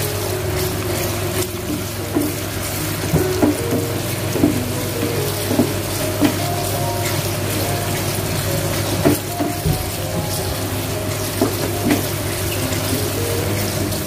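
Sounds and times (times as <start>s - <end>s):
coconut sizzling in oil: 0.0s - 14.0s
wooden spatula knocking pan: 3.1s - 6.5s.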